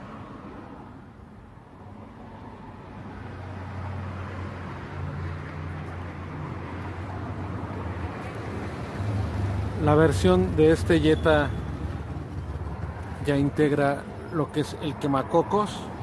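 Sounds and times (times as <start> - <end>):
motor vehicle engine rumbling: 5.3 - 15.2.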